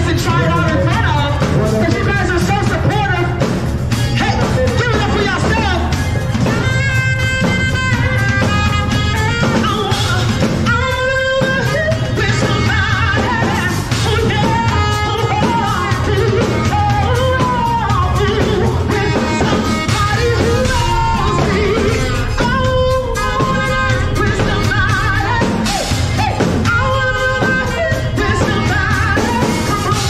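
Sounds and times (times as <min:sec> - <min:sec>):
drum kit: 0:00.0 - 0:30.0
saxophone: 0:03.8 - 0:30.0
woman singing into a microphone: 0:06.4 - 0:30.0.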